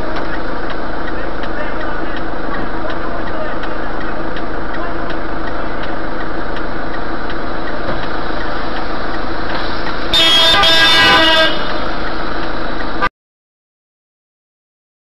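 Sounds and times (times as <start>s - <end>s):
car engine and road noise: 0.0s - 13.1s
car horn honking: 10.1s - 12.0s.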